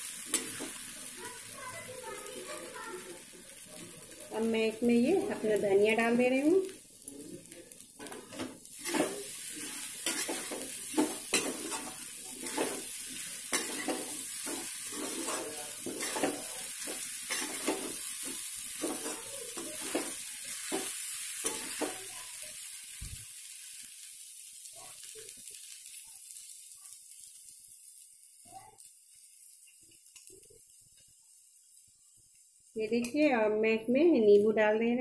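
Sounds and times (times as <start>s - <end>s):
food sizzling in a pan: 0.0s - 34.8s
metal spatula scraping a pan: 8.0s - 22.0s.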